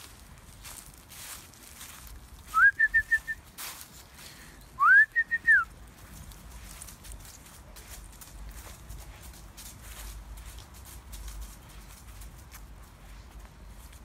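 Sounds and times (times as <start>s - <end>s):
person whistling dog call: 2.5s - 3.4s, 4.8s - 5.7s.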